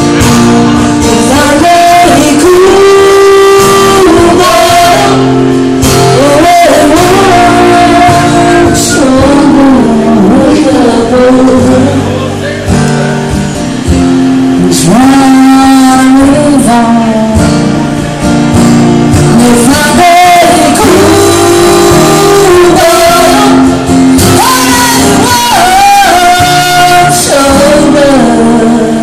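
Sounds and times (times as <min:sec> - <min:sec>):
strummed acoustic guitar: 0:00.0 - 0:29.0
woman and man singing duet: 0:01.0 - 0:12.3, 0:14.6 - 0:17.6, 0:19.2 - 0:29.0.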